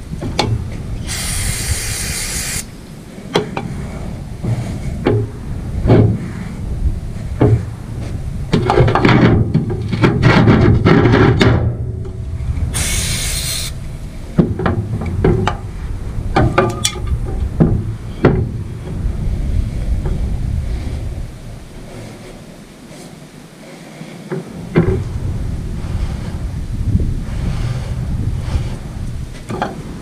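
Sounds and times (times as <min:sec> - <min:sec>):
aerosol spray hiss: 0:01.0 - 0:02.7, 0:12.8 - 0:13.8
metal parts knocking and scraping: 0:07.4 - 0:12.2, 0:16.4 - 0:19.0, 0:29.4 - 0:29.9.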